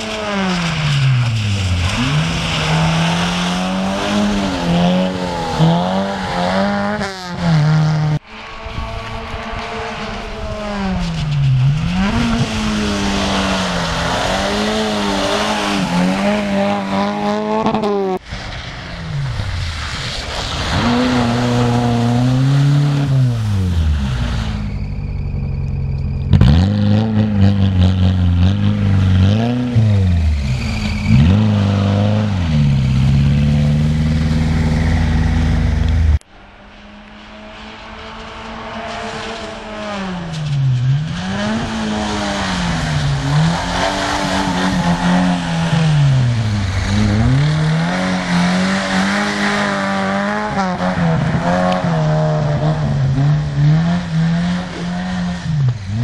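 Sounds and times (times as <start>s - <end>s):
rally car engine revving: 0.0s - 56.0s.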